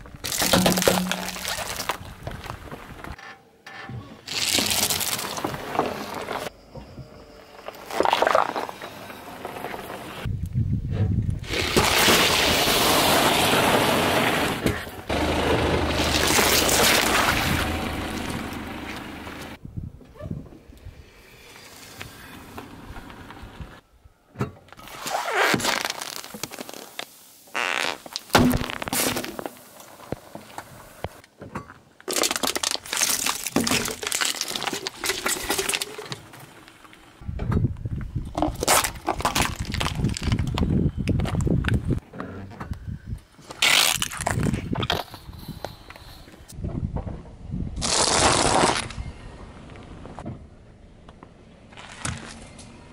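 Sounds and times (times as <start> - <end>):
aluminium can crumpling: 0.2 - 2.1, 4.3 - 5.5, 32.1 - 36.2, 38.3 - 40.7, 43.6 - 45.2
car tyre crushing objects: 0.2 - 3.1, 4.3 - 6.5, 11.4 - 19.6, 24.7 - 30.6, 32.0 - 37.2, 38.3 - 41.6, 43.5 - 45.2, 47.8 - 49.0.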